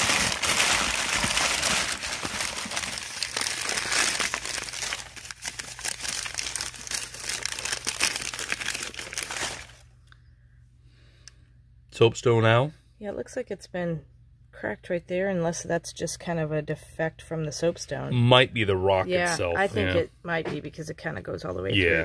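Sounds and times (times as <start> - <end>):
newspaper crinkling and rustling: 0.0 - 9.8.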